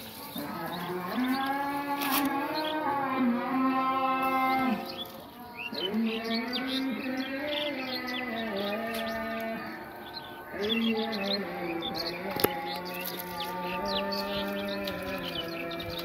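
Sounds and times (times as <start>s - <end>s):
birds chirping: 0.0s - 16.0s
cow mooing: 0.4s - 5.0s, 10.6s - 16.0s.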